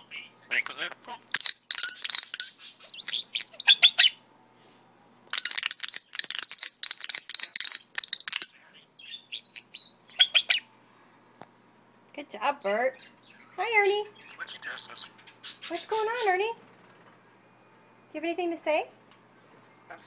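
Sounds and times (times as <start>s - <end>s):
ticking rattle: 1.3s - 3.9s, 5.3s - 8.7s
starling whistles and chatter: 1.4s - 4.2s, 5.4s - 10.7s, 13.0s - 17.3s.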